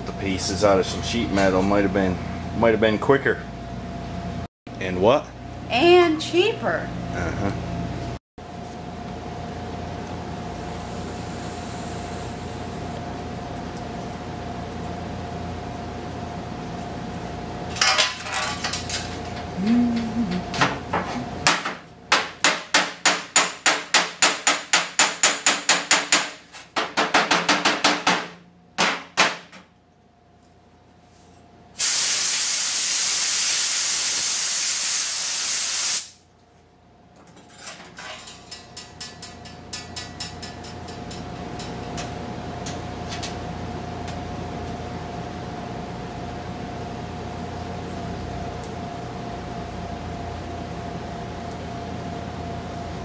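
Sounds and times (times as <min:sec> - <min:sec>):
welding torch hissing: 0:10.5 - 0:13.0, 0:31.8 - 0:36.2
compressed air hiss: 0:31.8 - 0:36.2.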